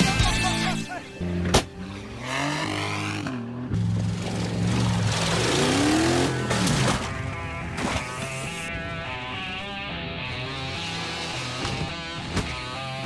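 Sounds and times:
engine revving hard: 2.2s - 3.4s, 4.0s - 7.1s.

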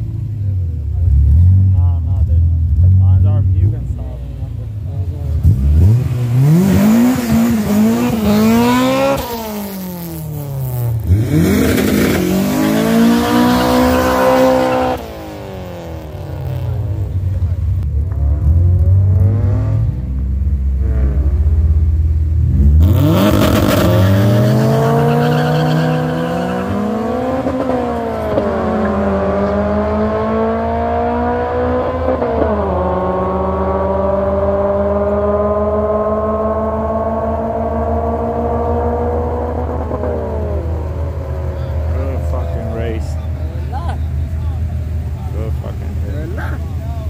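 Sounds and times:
low engine rumble: 0.0s - 8.8s, 15.2s - 22.8s, 35.8s - 47.0s
car engines revving hard: 0.0s - 47.0s.

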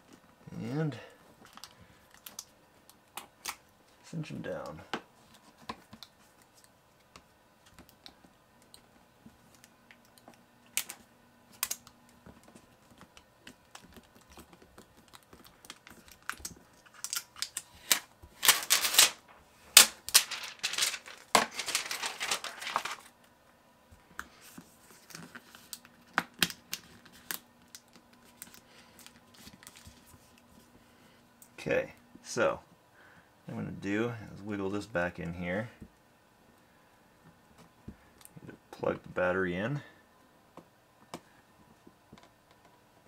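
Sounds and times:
rustling: 12.3s - 23.1s.

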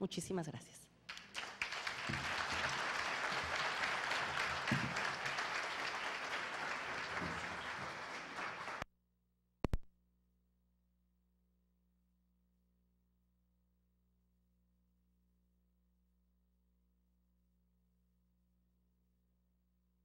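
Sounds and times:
audience applauding: 1.1s - 8.8s.

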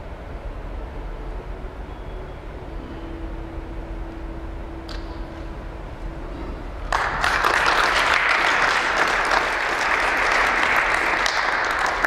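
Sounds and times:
group clapping in applause: 6.8s - 12.0s.

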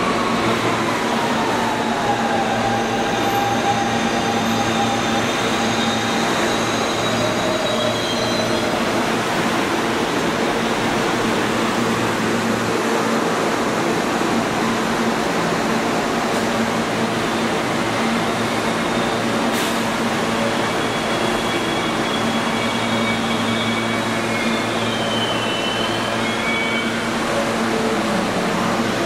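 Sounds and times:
subway train wheel and motor rush: 0.0s - 29.0s
high wheel squeal: 2.5s - 9.0s, 20.4s - 27.2s.

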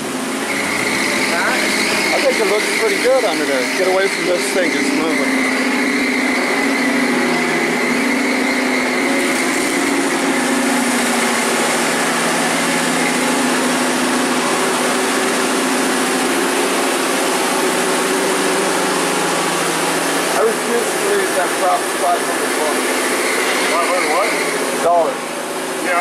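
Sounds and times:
lift engine running: 0.0s - 26.0s
thin high whine: 0.0s - 26.0s.

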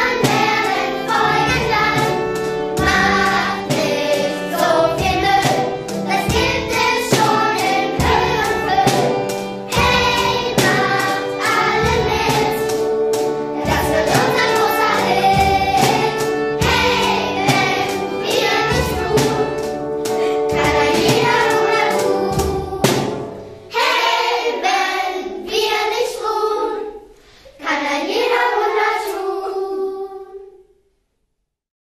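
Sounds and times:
musical accompaniment with steady beat: 0.0s - 25.0s
children's choir singing: 0.0s - 30.6s.

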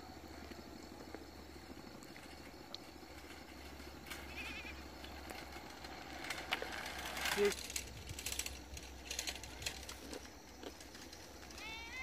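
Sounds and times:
faint ticks: 1.9s - 3.3s.

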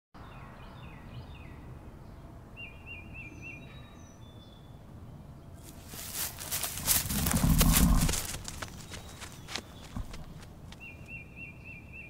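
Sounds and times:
steady low rumble: 4.7s - 10.8s
cattle shuffling and stepping: 5.7s - 10.6s
birds chirping and whistling: 5.7s - 12.0s.

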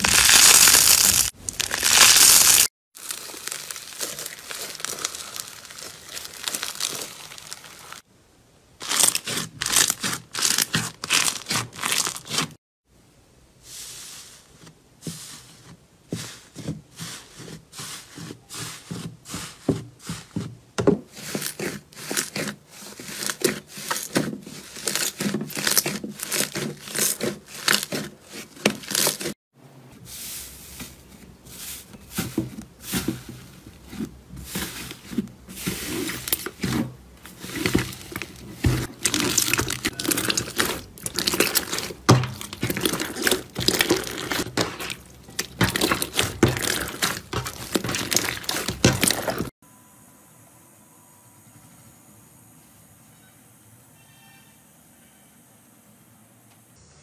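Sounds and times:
slime crackling and squelching: 0.0s - 8.1s, 8.8s - 12.6s, 21.1s - 29.4s, 32.9s - 49.6s.

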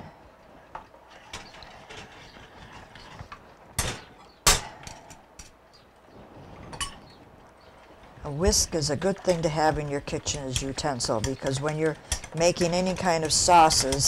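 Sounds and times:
utensils scraping a saucepan: 1.1s - 4.1s, 8.6s - 14.0s.

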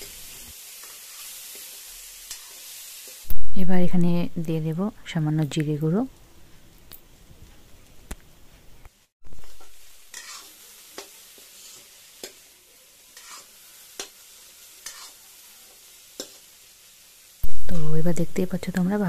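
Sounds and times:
food sizzling in oil: 0.0s - 4.9s, 9.0s - 19.0s
metal spatula scraping a pan: 9.3s - 12.5s, 13.1s - 16.5s.

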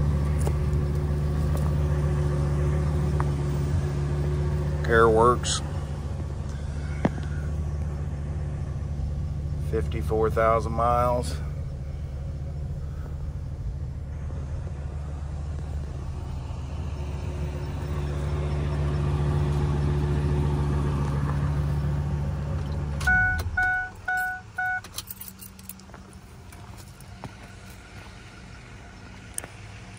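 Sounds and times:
truck engine idling: 0.0s - 29.9s
truck warning chime beeps: 23.0s - 25.0s.

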